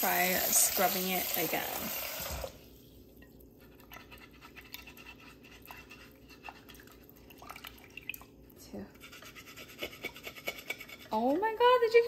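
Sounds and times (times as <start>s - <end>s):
tap water running into pot: 0.0s - 2.6s
eraser scrubbing glass pot: 3.8s - 6.9s, 9.0s - 11.5s.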